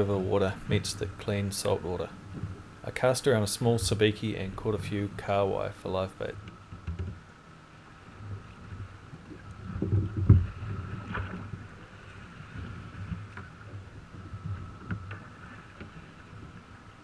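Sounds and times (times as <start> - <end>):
wind on microphone: 0.0 - 5.3
water slapping against hull: 8.1 - 17.0.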